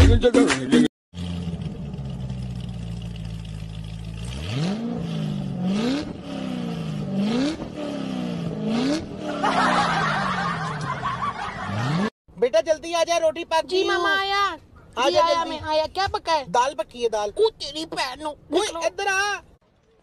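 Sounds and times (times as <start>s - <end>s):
engine idling and revving: 1.1s - 12.1s.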